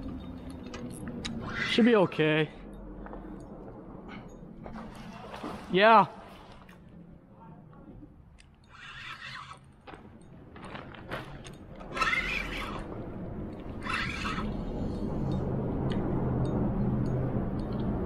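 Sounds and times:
low rumble: 0:11.4 - 0:18.0.

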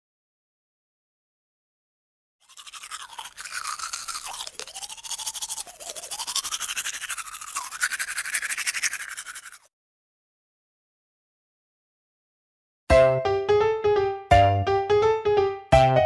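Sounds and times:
toothbrush scrubbing teeth: 0:02.4 - 0:09.7.

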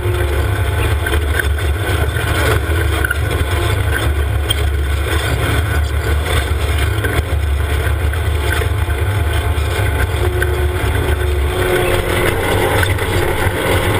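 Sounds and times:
utility vehicle engine running: 0:00.0 - 0:13.9
wind buffeting microphone: 0:06.8 - 0:13.9.

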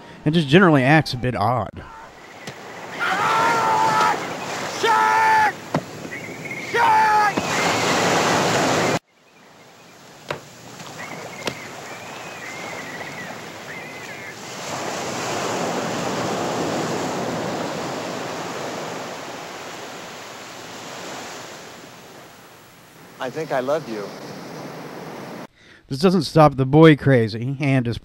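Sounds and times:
ocean waves breaking: 0:01.8 - 0:25.5.

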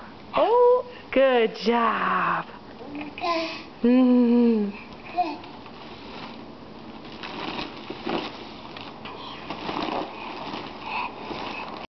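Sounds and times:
plastic wrapping crinkling: 0:05.4 - 0:11.9.

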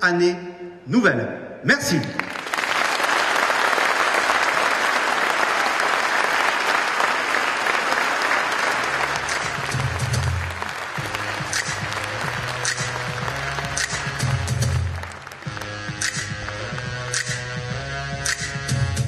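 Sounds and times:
audience applauding: 0:02.0 - 0:17.5.

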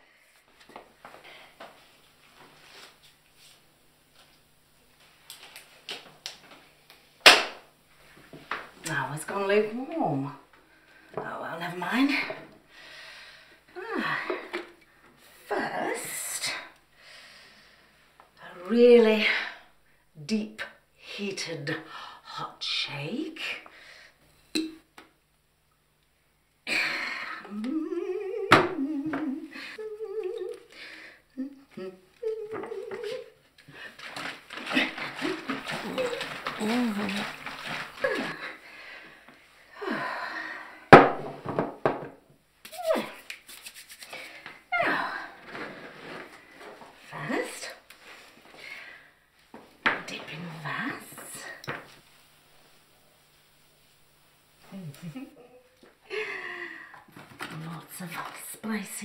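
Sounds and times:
man humming through tape: 0:27.4 - 0:30.7, 0:31.4 - 0:33.3
rubber glove rustling: 0:32.8 - 0:38.6, 0:42.7 - 0:44.6.

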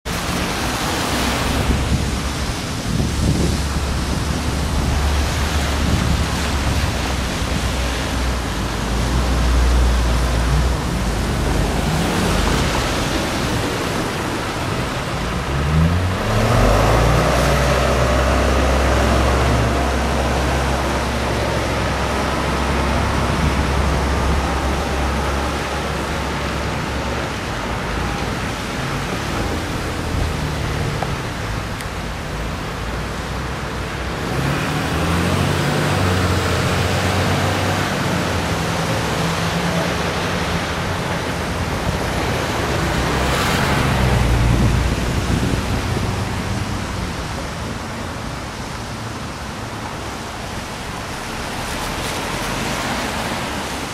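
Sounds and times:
car engines passing: 0:00.0 - 0:53.9
vehicle accelerating away: 0:15.4 - 0:26.2, 0:34.2 - 0:40.5.

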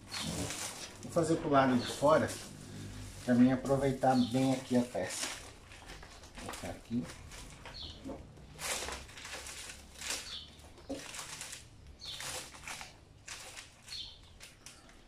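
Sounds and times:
plastic film crinkling: 0:00.0 - 0:15.0.

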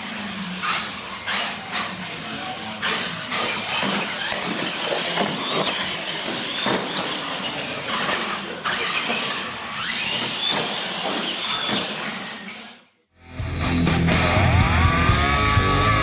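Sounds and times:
toy truck motors whining: 0:00.0 - 0:13.0
tyres rumbling on concrete: 0:00.1 - 0:12.8.

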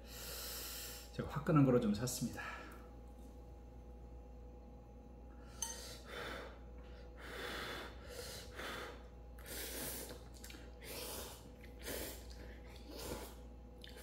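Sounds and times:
noodles being slurped: 0:09.7 - 0:14.0.

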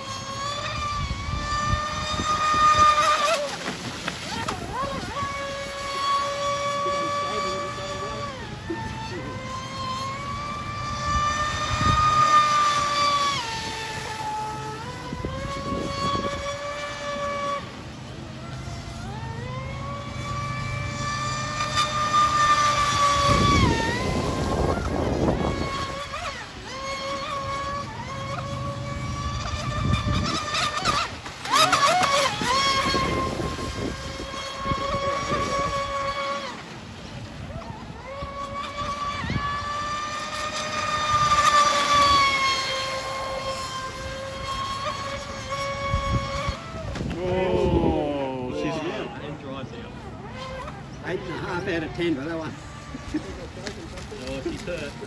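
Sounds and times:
hull hissing on water: 0:00.0 - 0:37.1
electric motor whine: 0:00.0 - 0:55.0.

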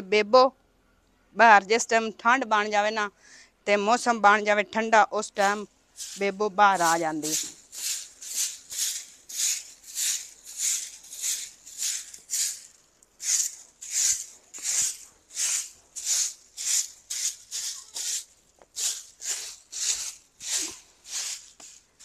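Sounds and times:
broom sweeping earthen floor: 0:05.2 - 0:22.0.

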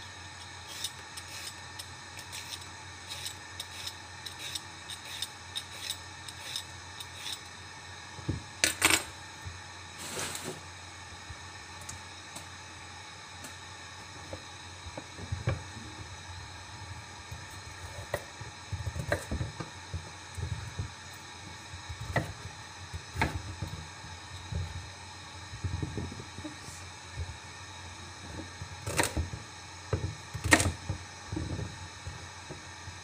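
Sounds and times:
knife chopping on wooden board: 0:18.8 - 0:19.6.

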